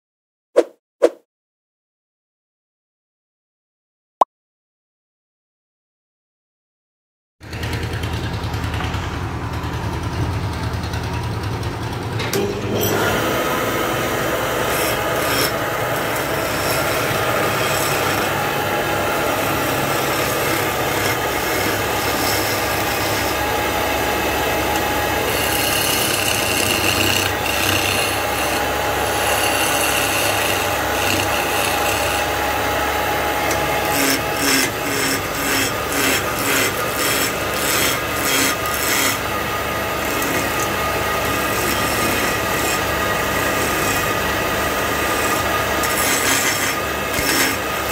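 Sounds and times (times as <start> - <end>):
wood lathe running: 7.5 - 47.9
lathe tool scraping wood: 12.6 - 47.9.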